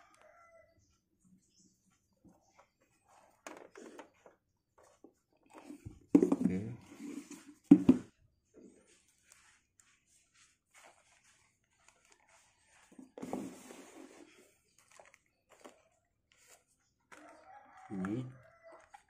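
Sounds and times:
cardboard and plastic wrap rustling: 10.5 - 14.8.

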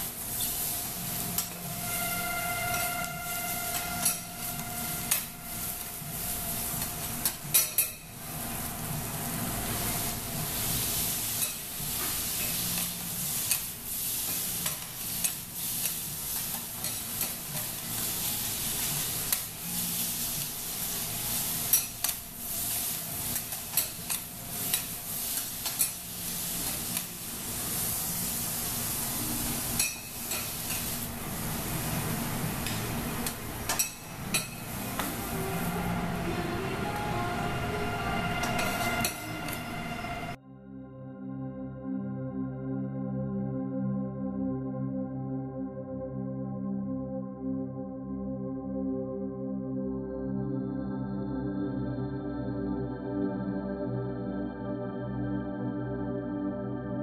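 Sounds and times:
food sizzling on a griddle: 0.0 - 35.8
metal spatulas scraping and tapping: 1.4 - 5.9, 6.8 - 8.0, 11.4 - 13.7, 14.3 - 18.0, 21.7 - 22.2, 23.3 - 27.1, 29.8 - 30.9, 32.6 - 35.1, 38.4 - 39.7.

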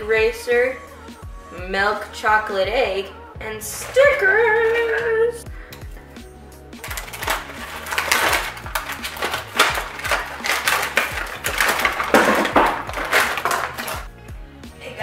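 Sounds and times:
plastic packaging crinkling: 6.8 - 14.1.

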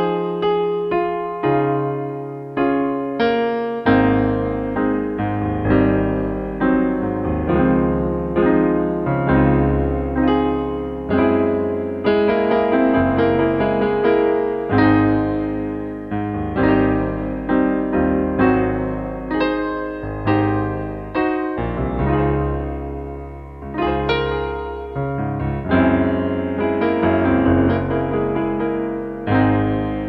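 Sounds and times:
slow piano playing: 0.0 - 30.0.

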